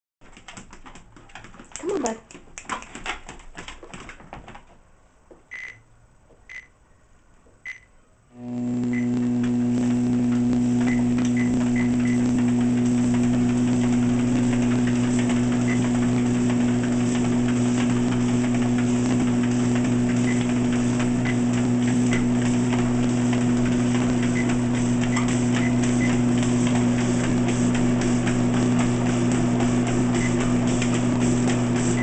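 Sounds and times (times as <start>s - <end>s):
dog steps on treadmill belt: 0.2s - 4.9s, 10.3s - 32.0s
treadmill electric hum: 7.4s - 32.0s.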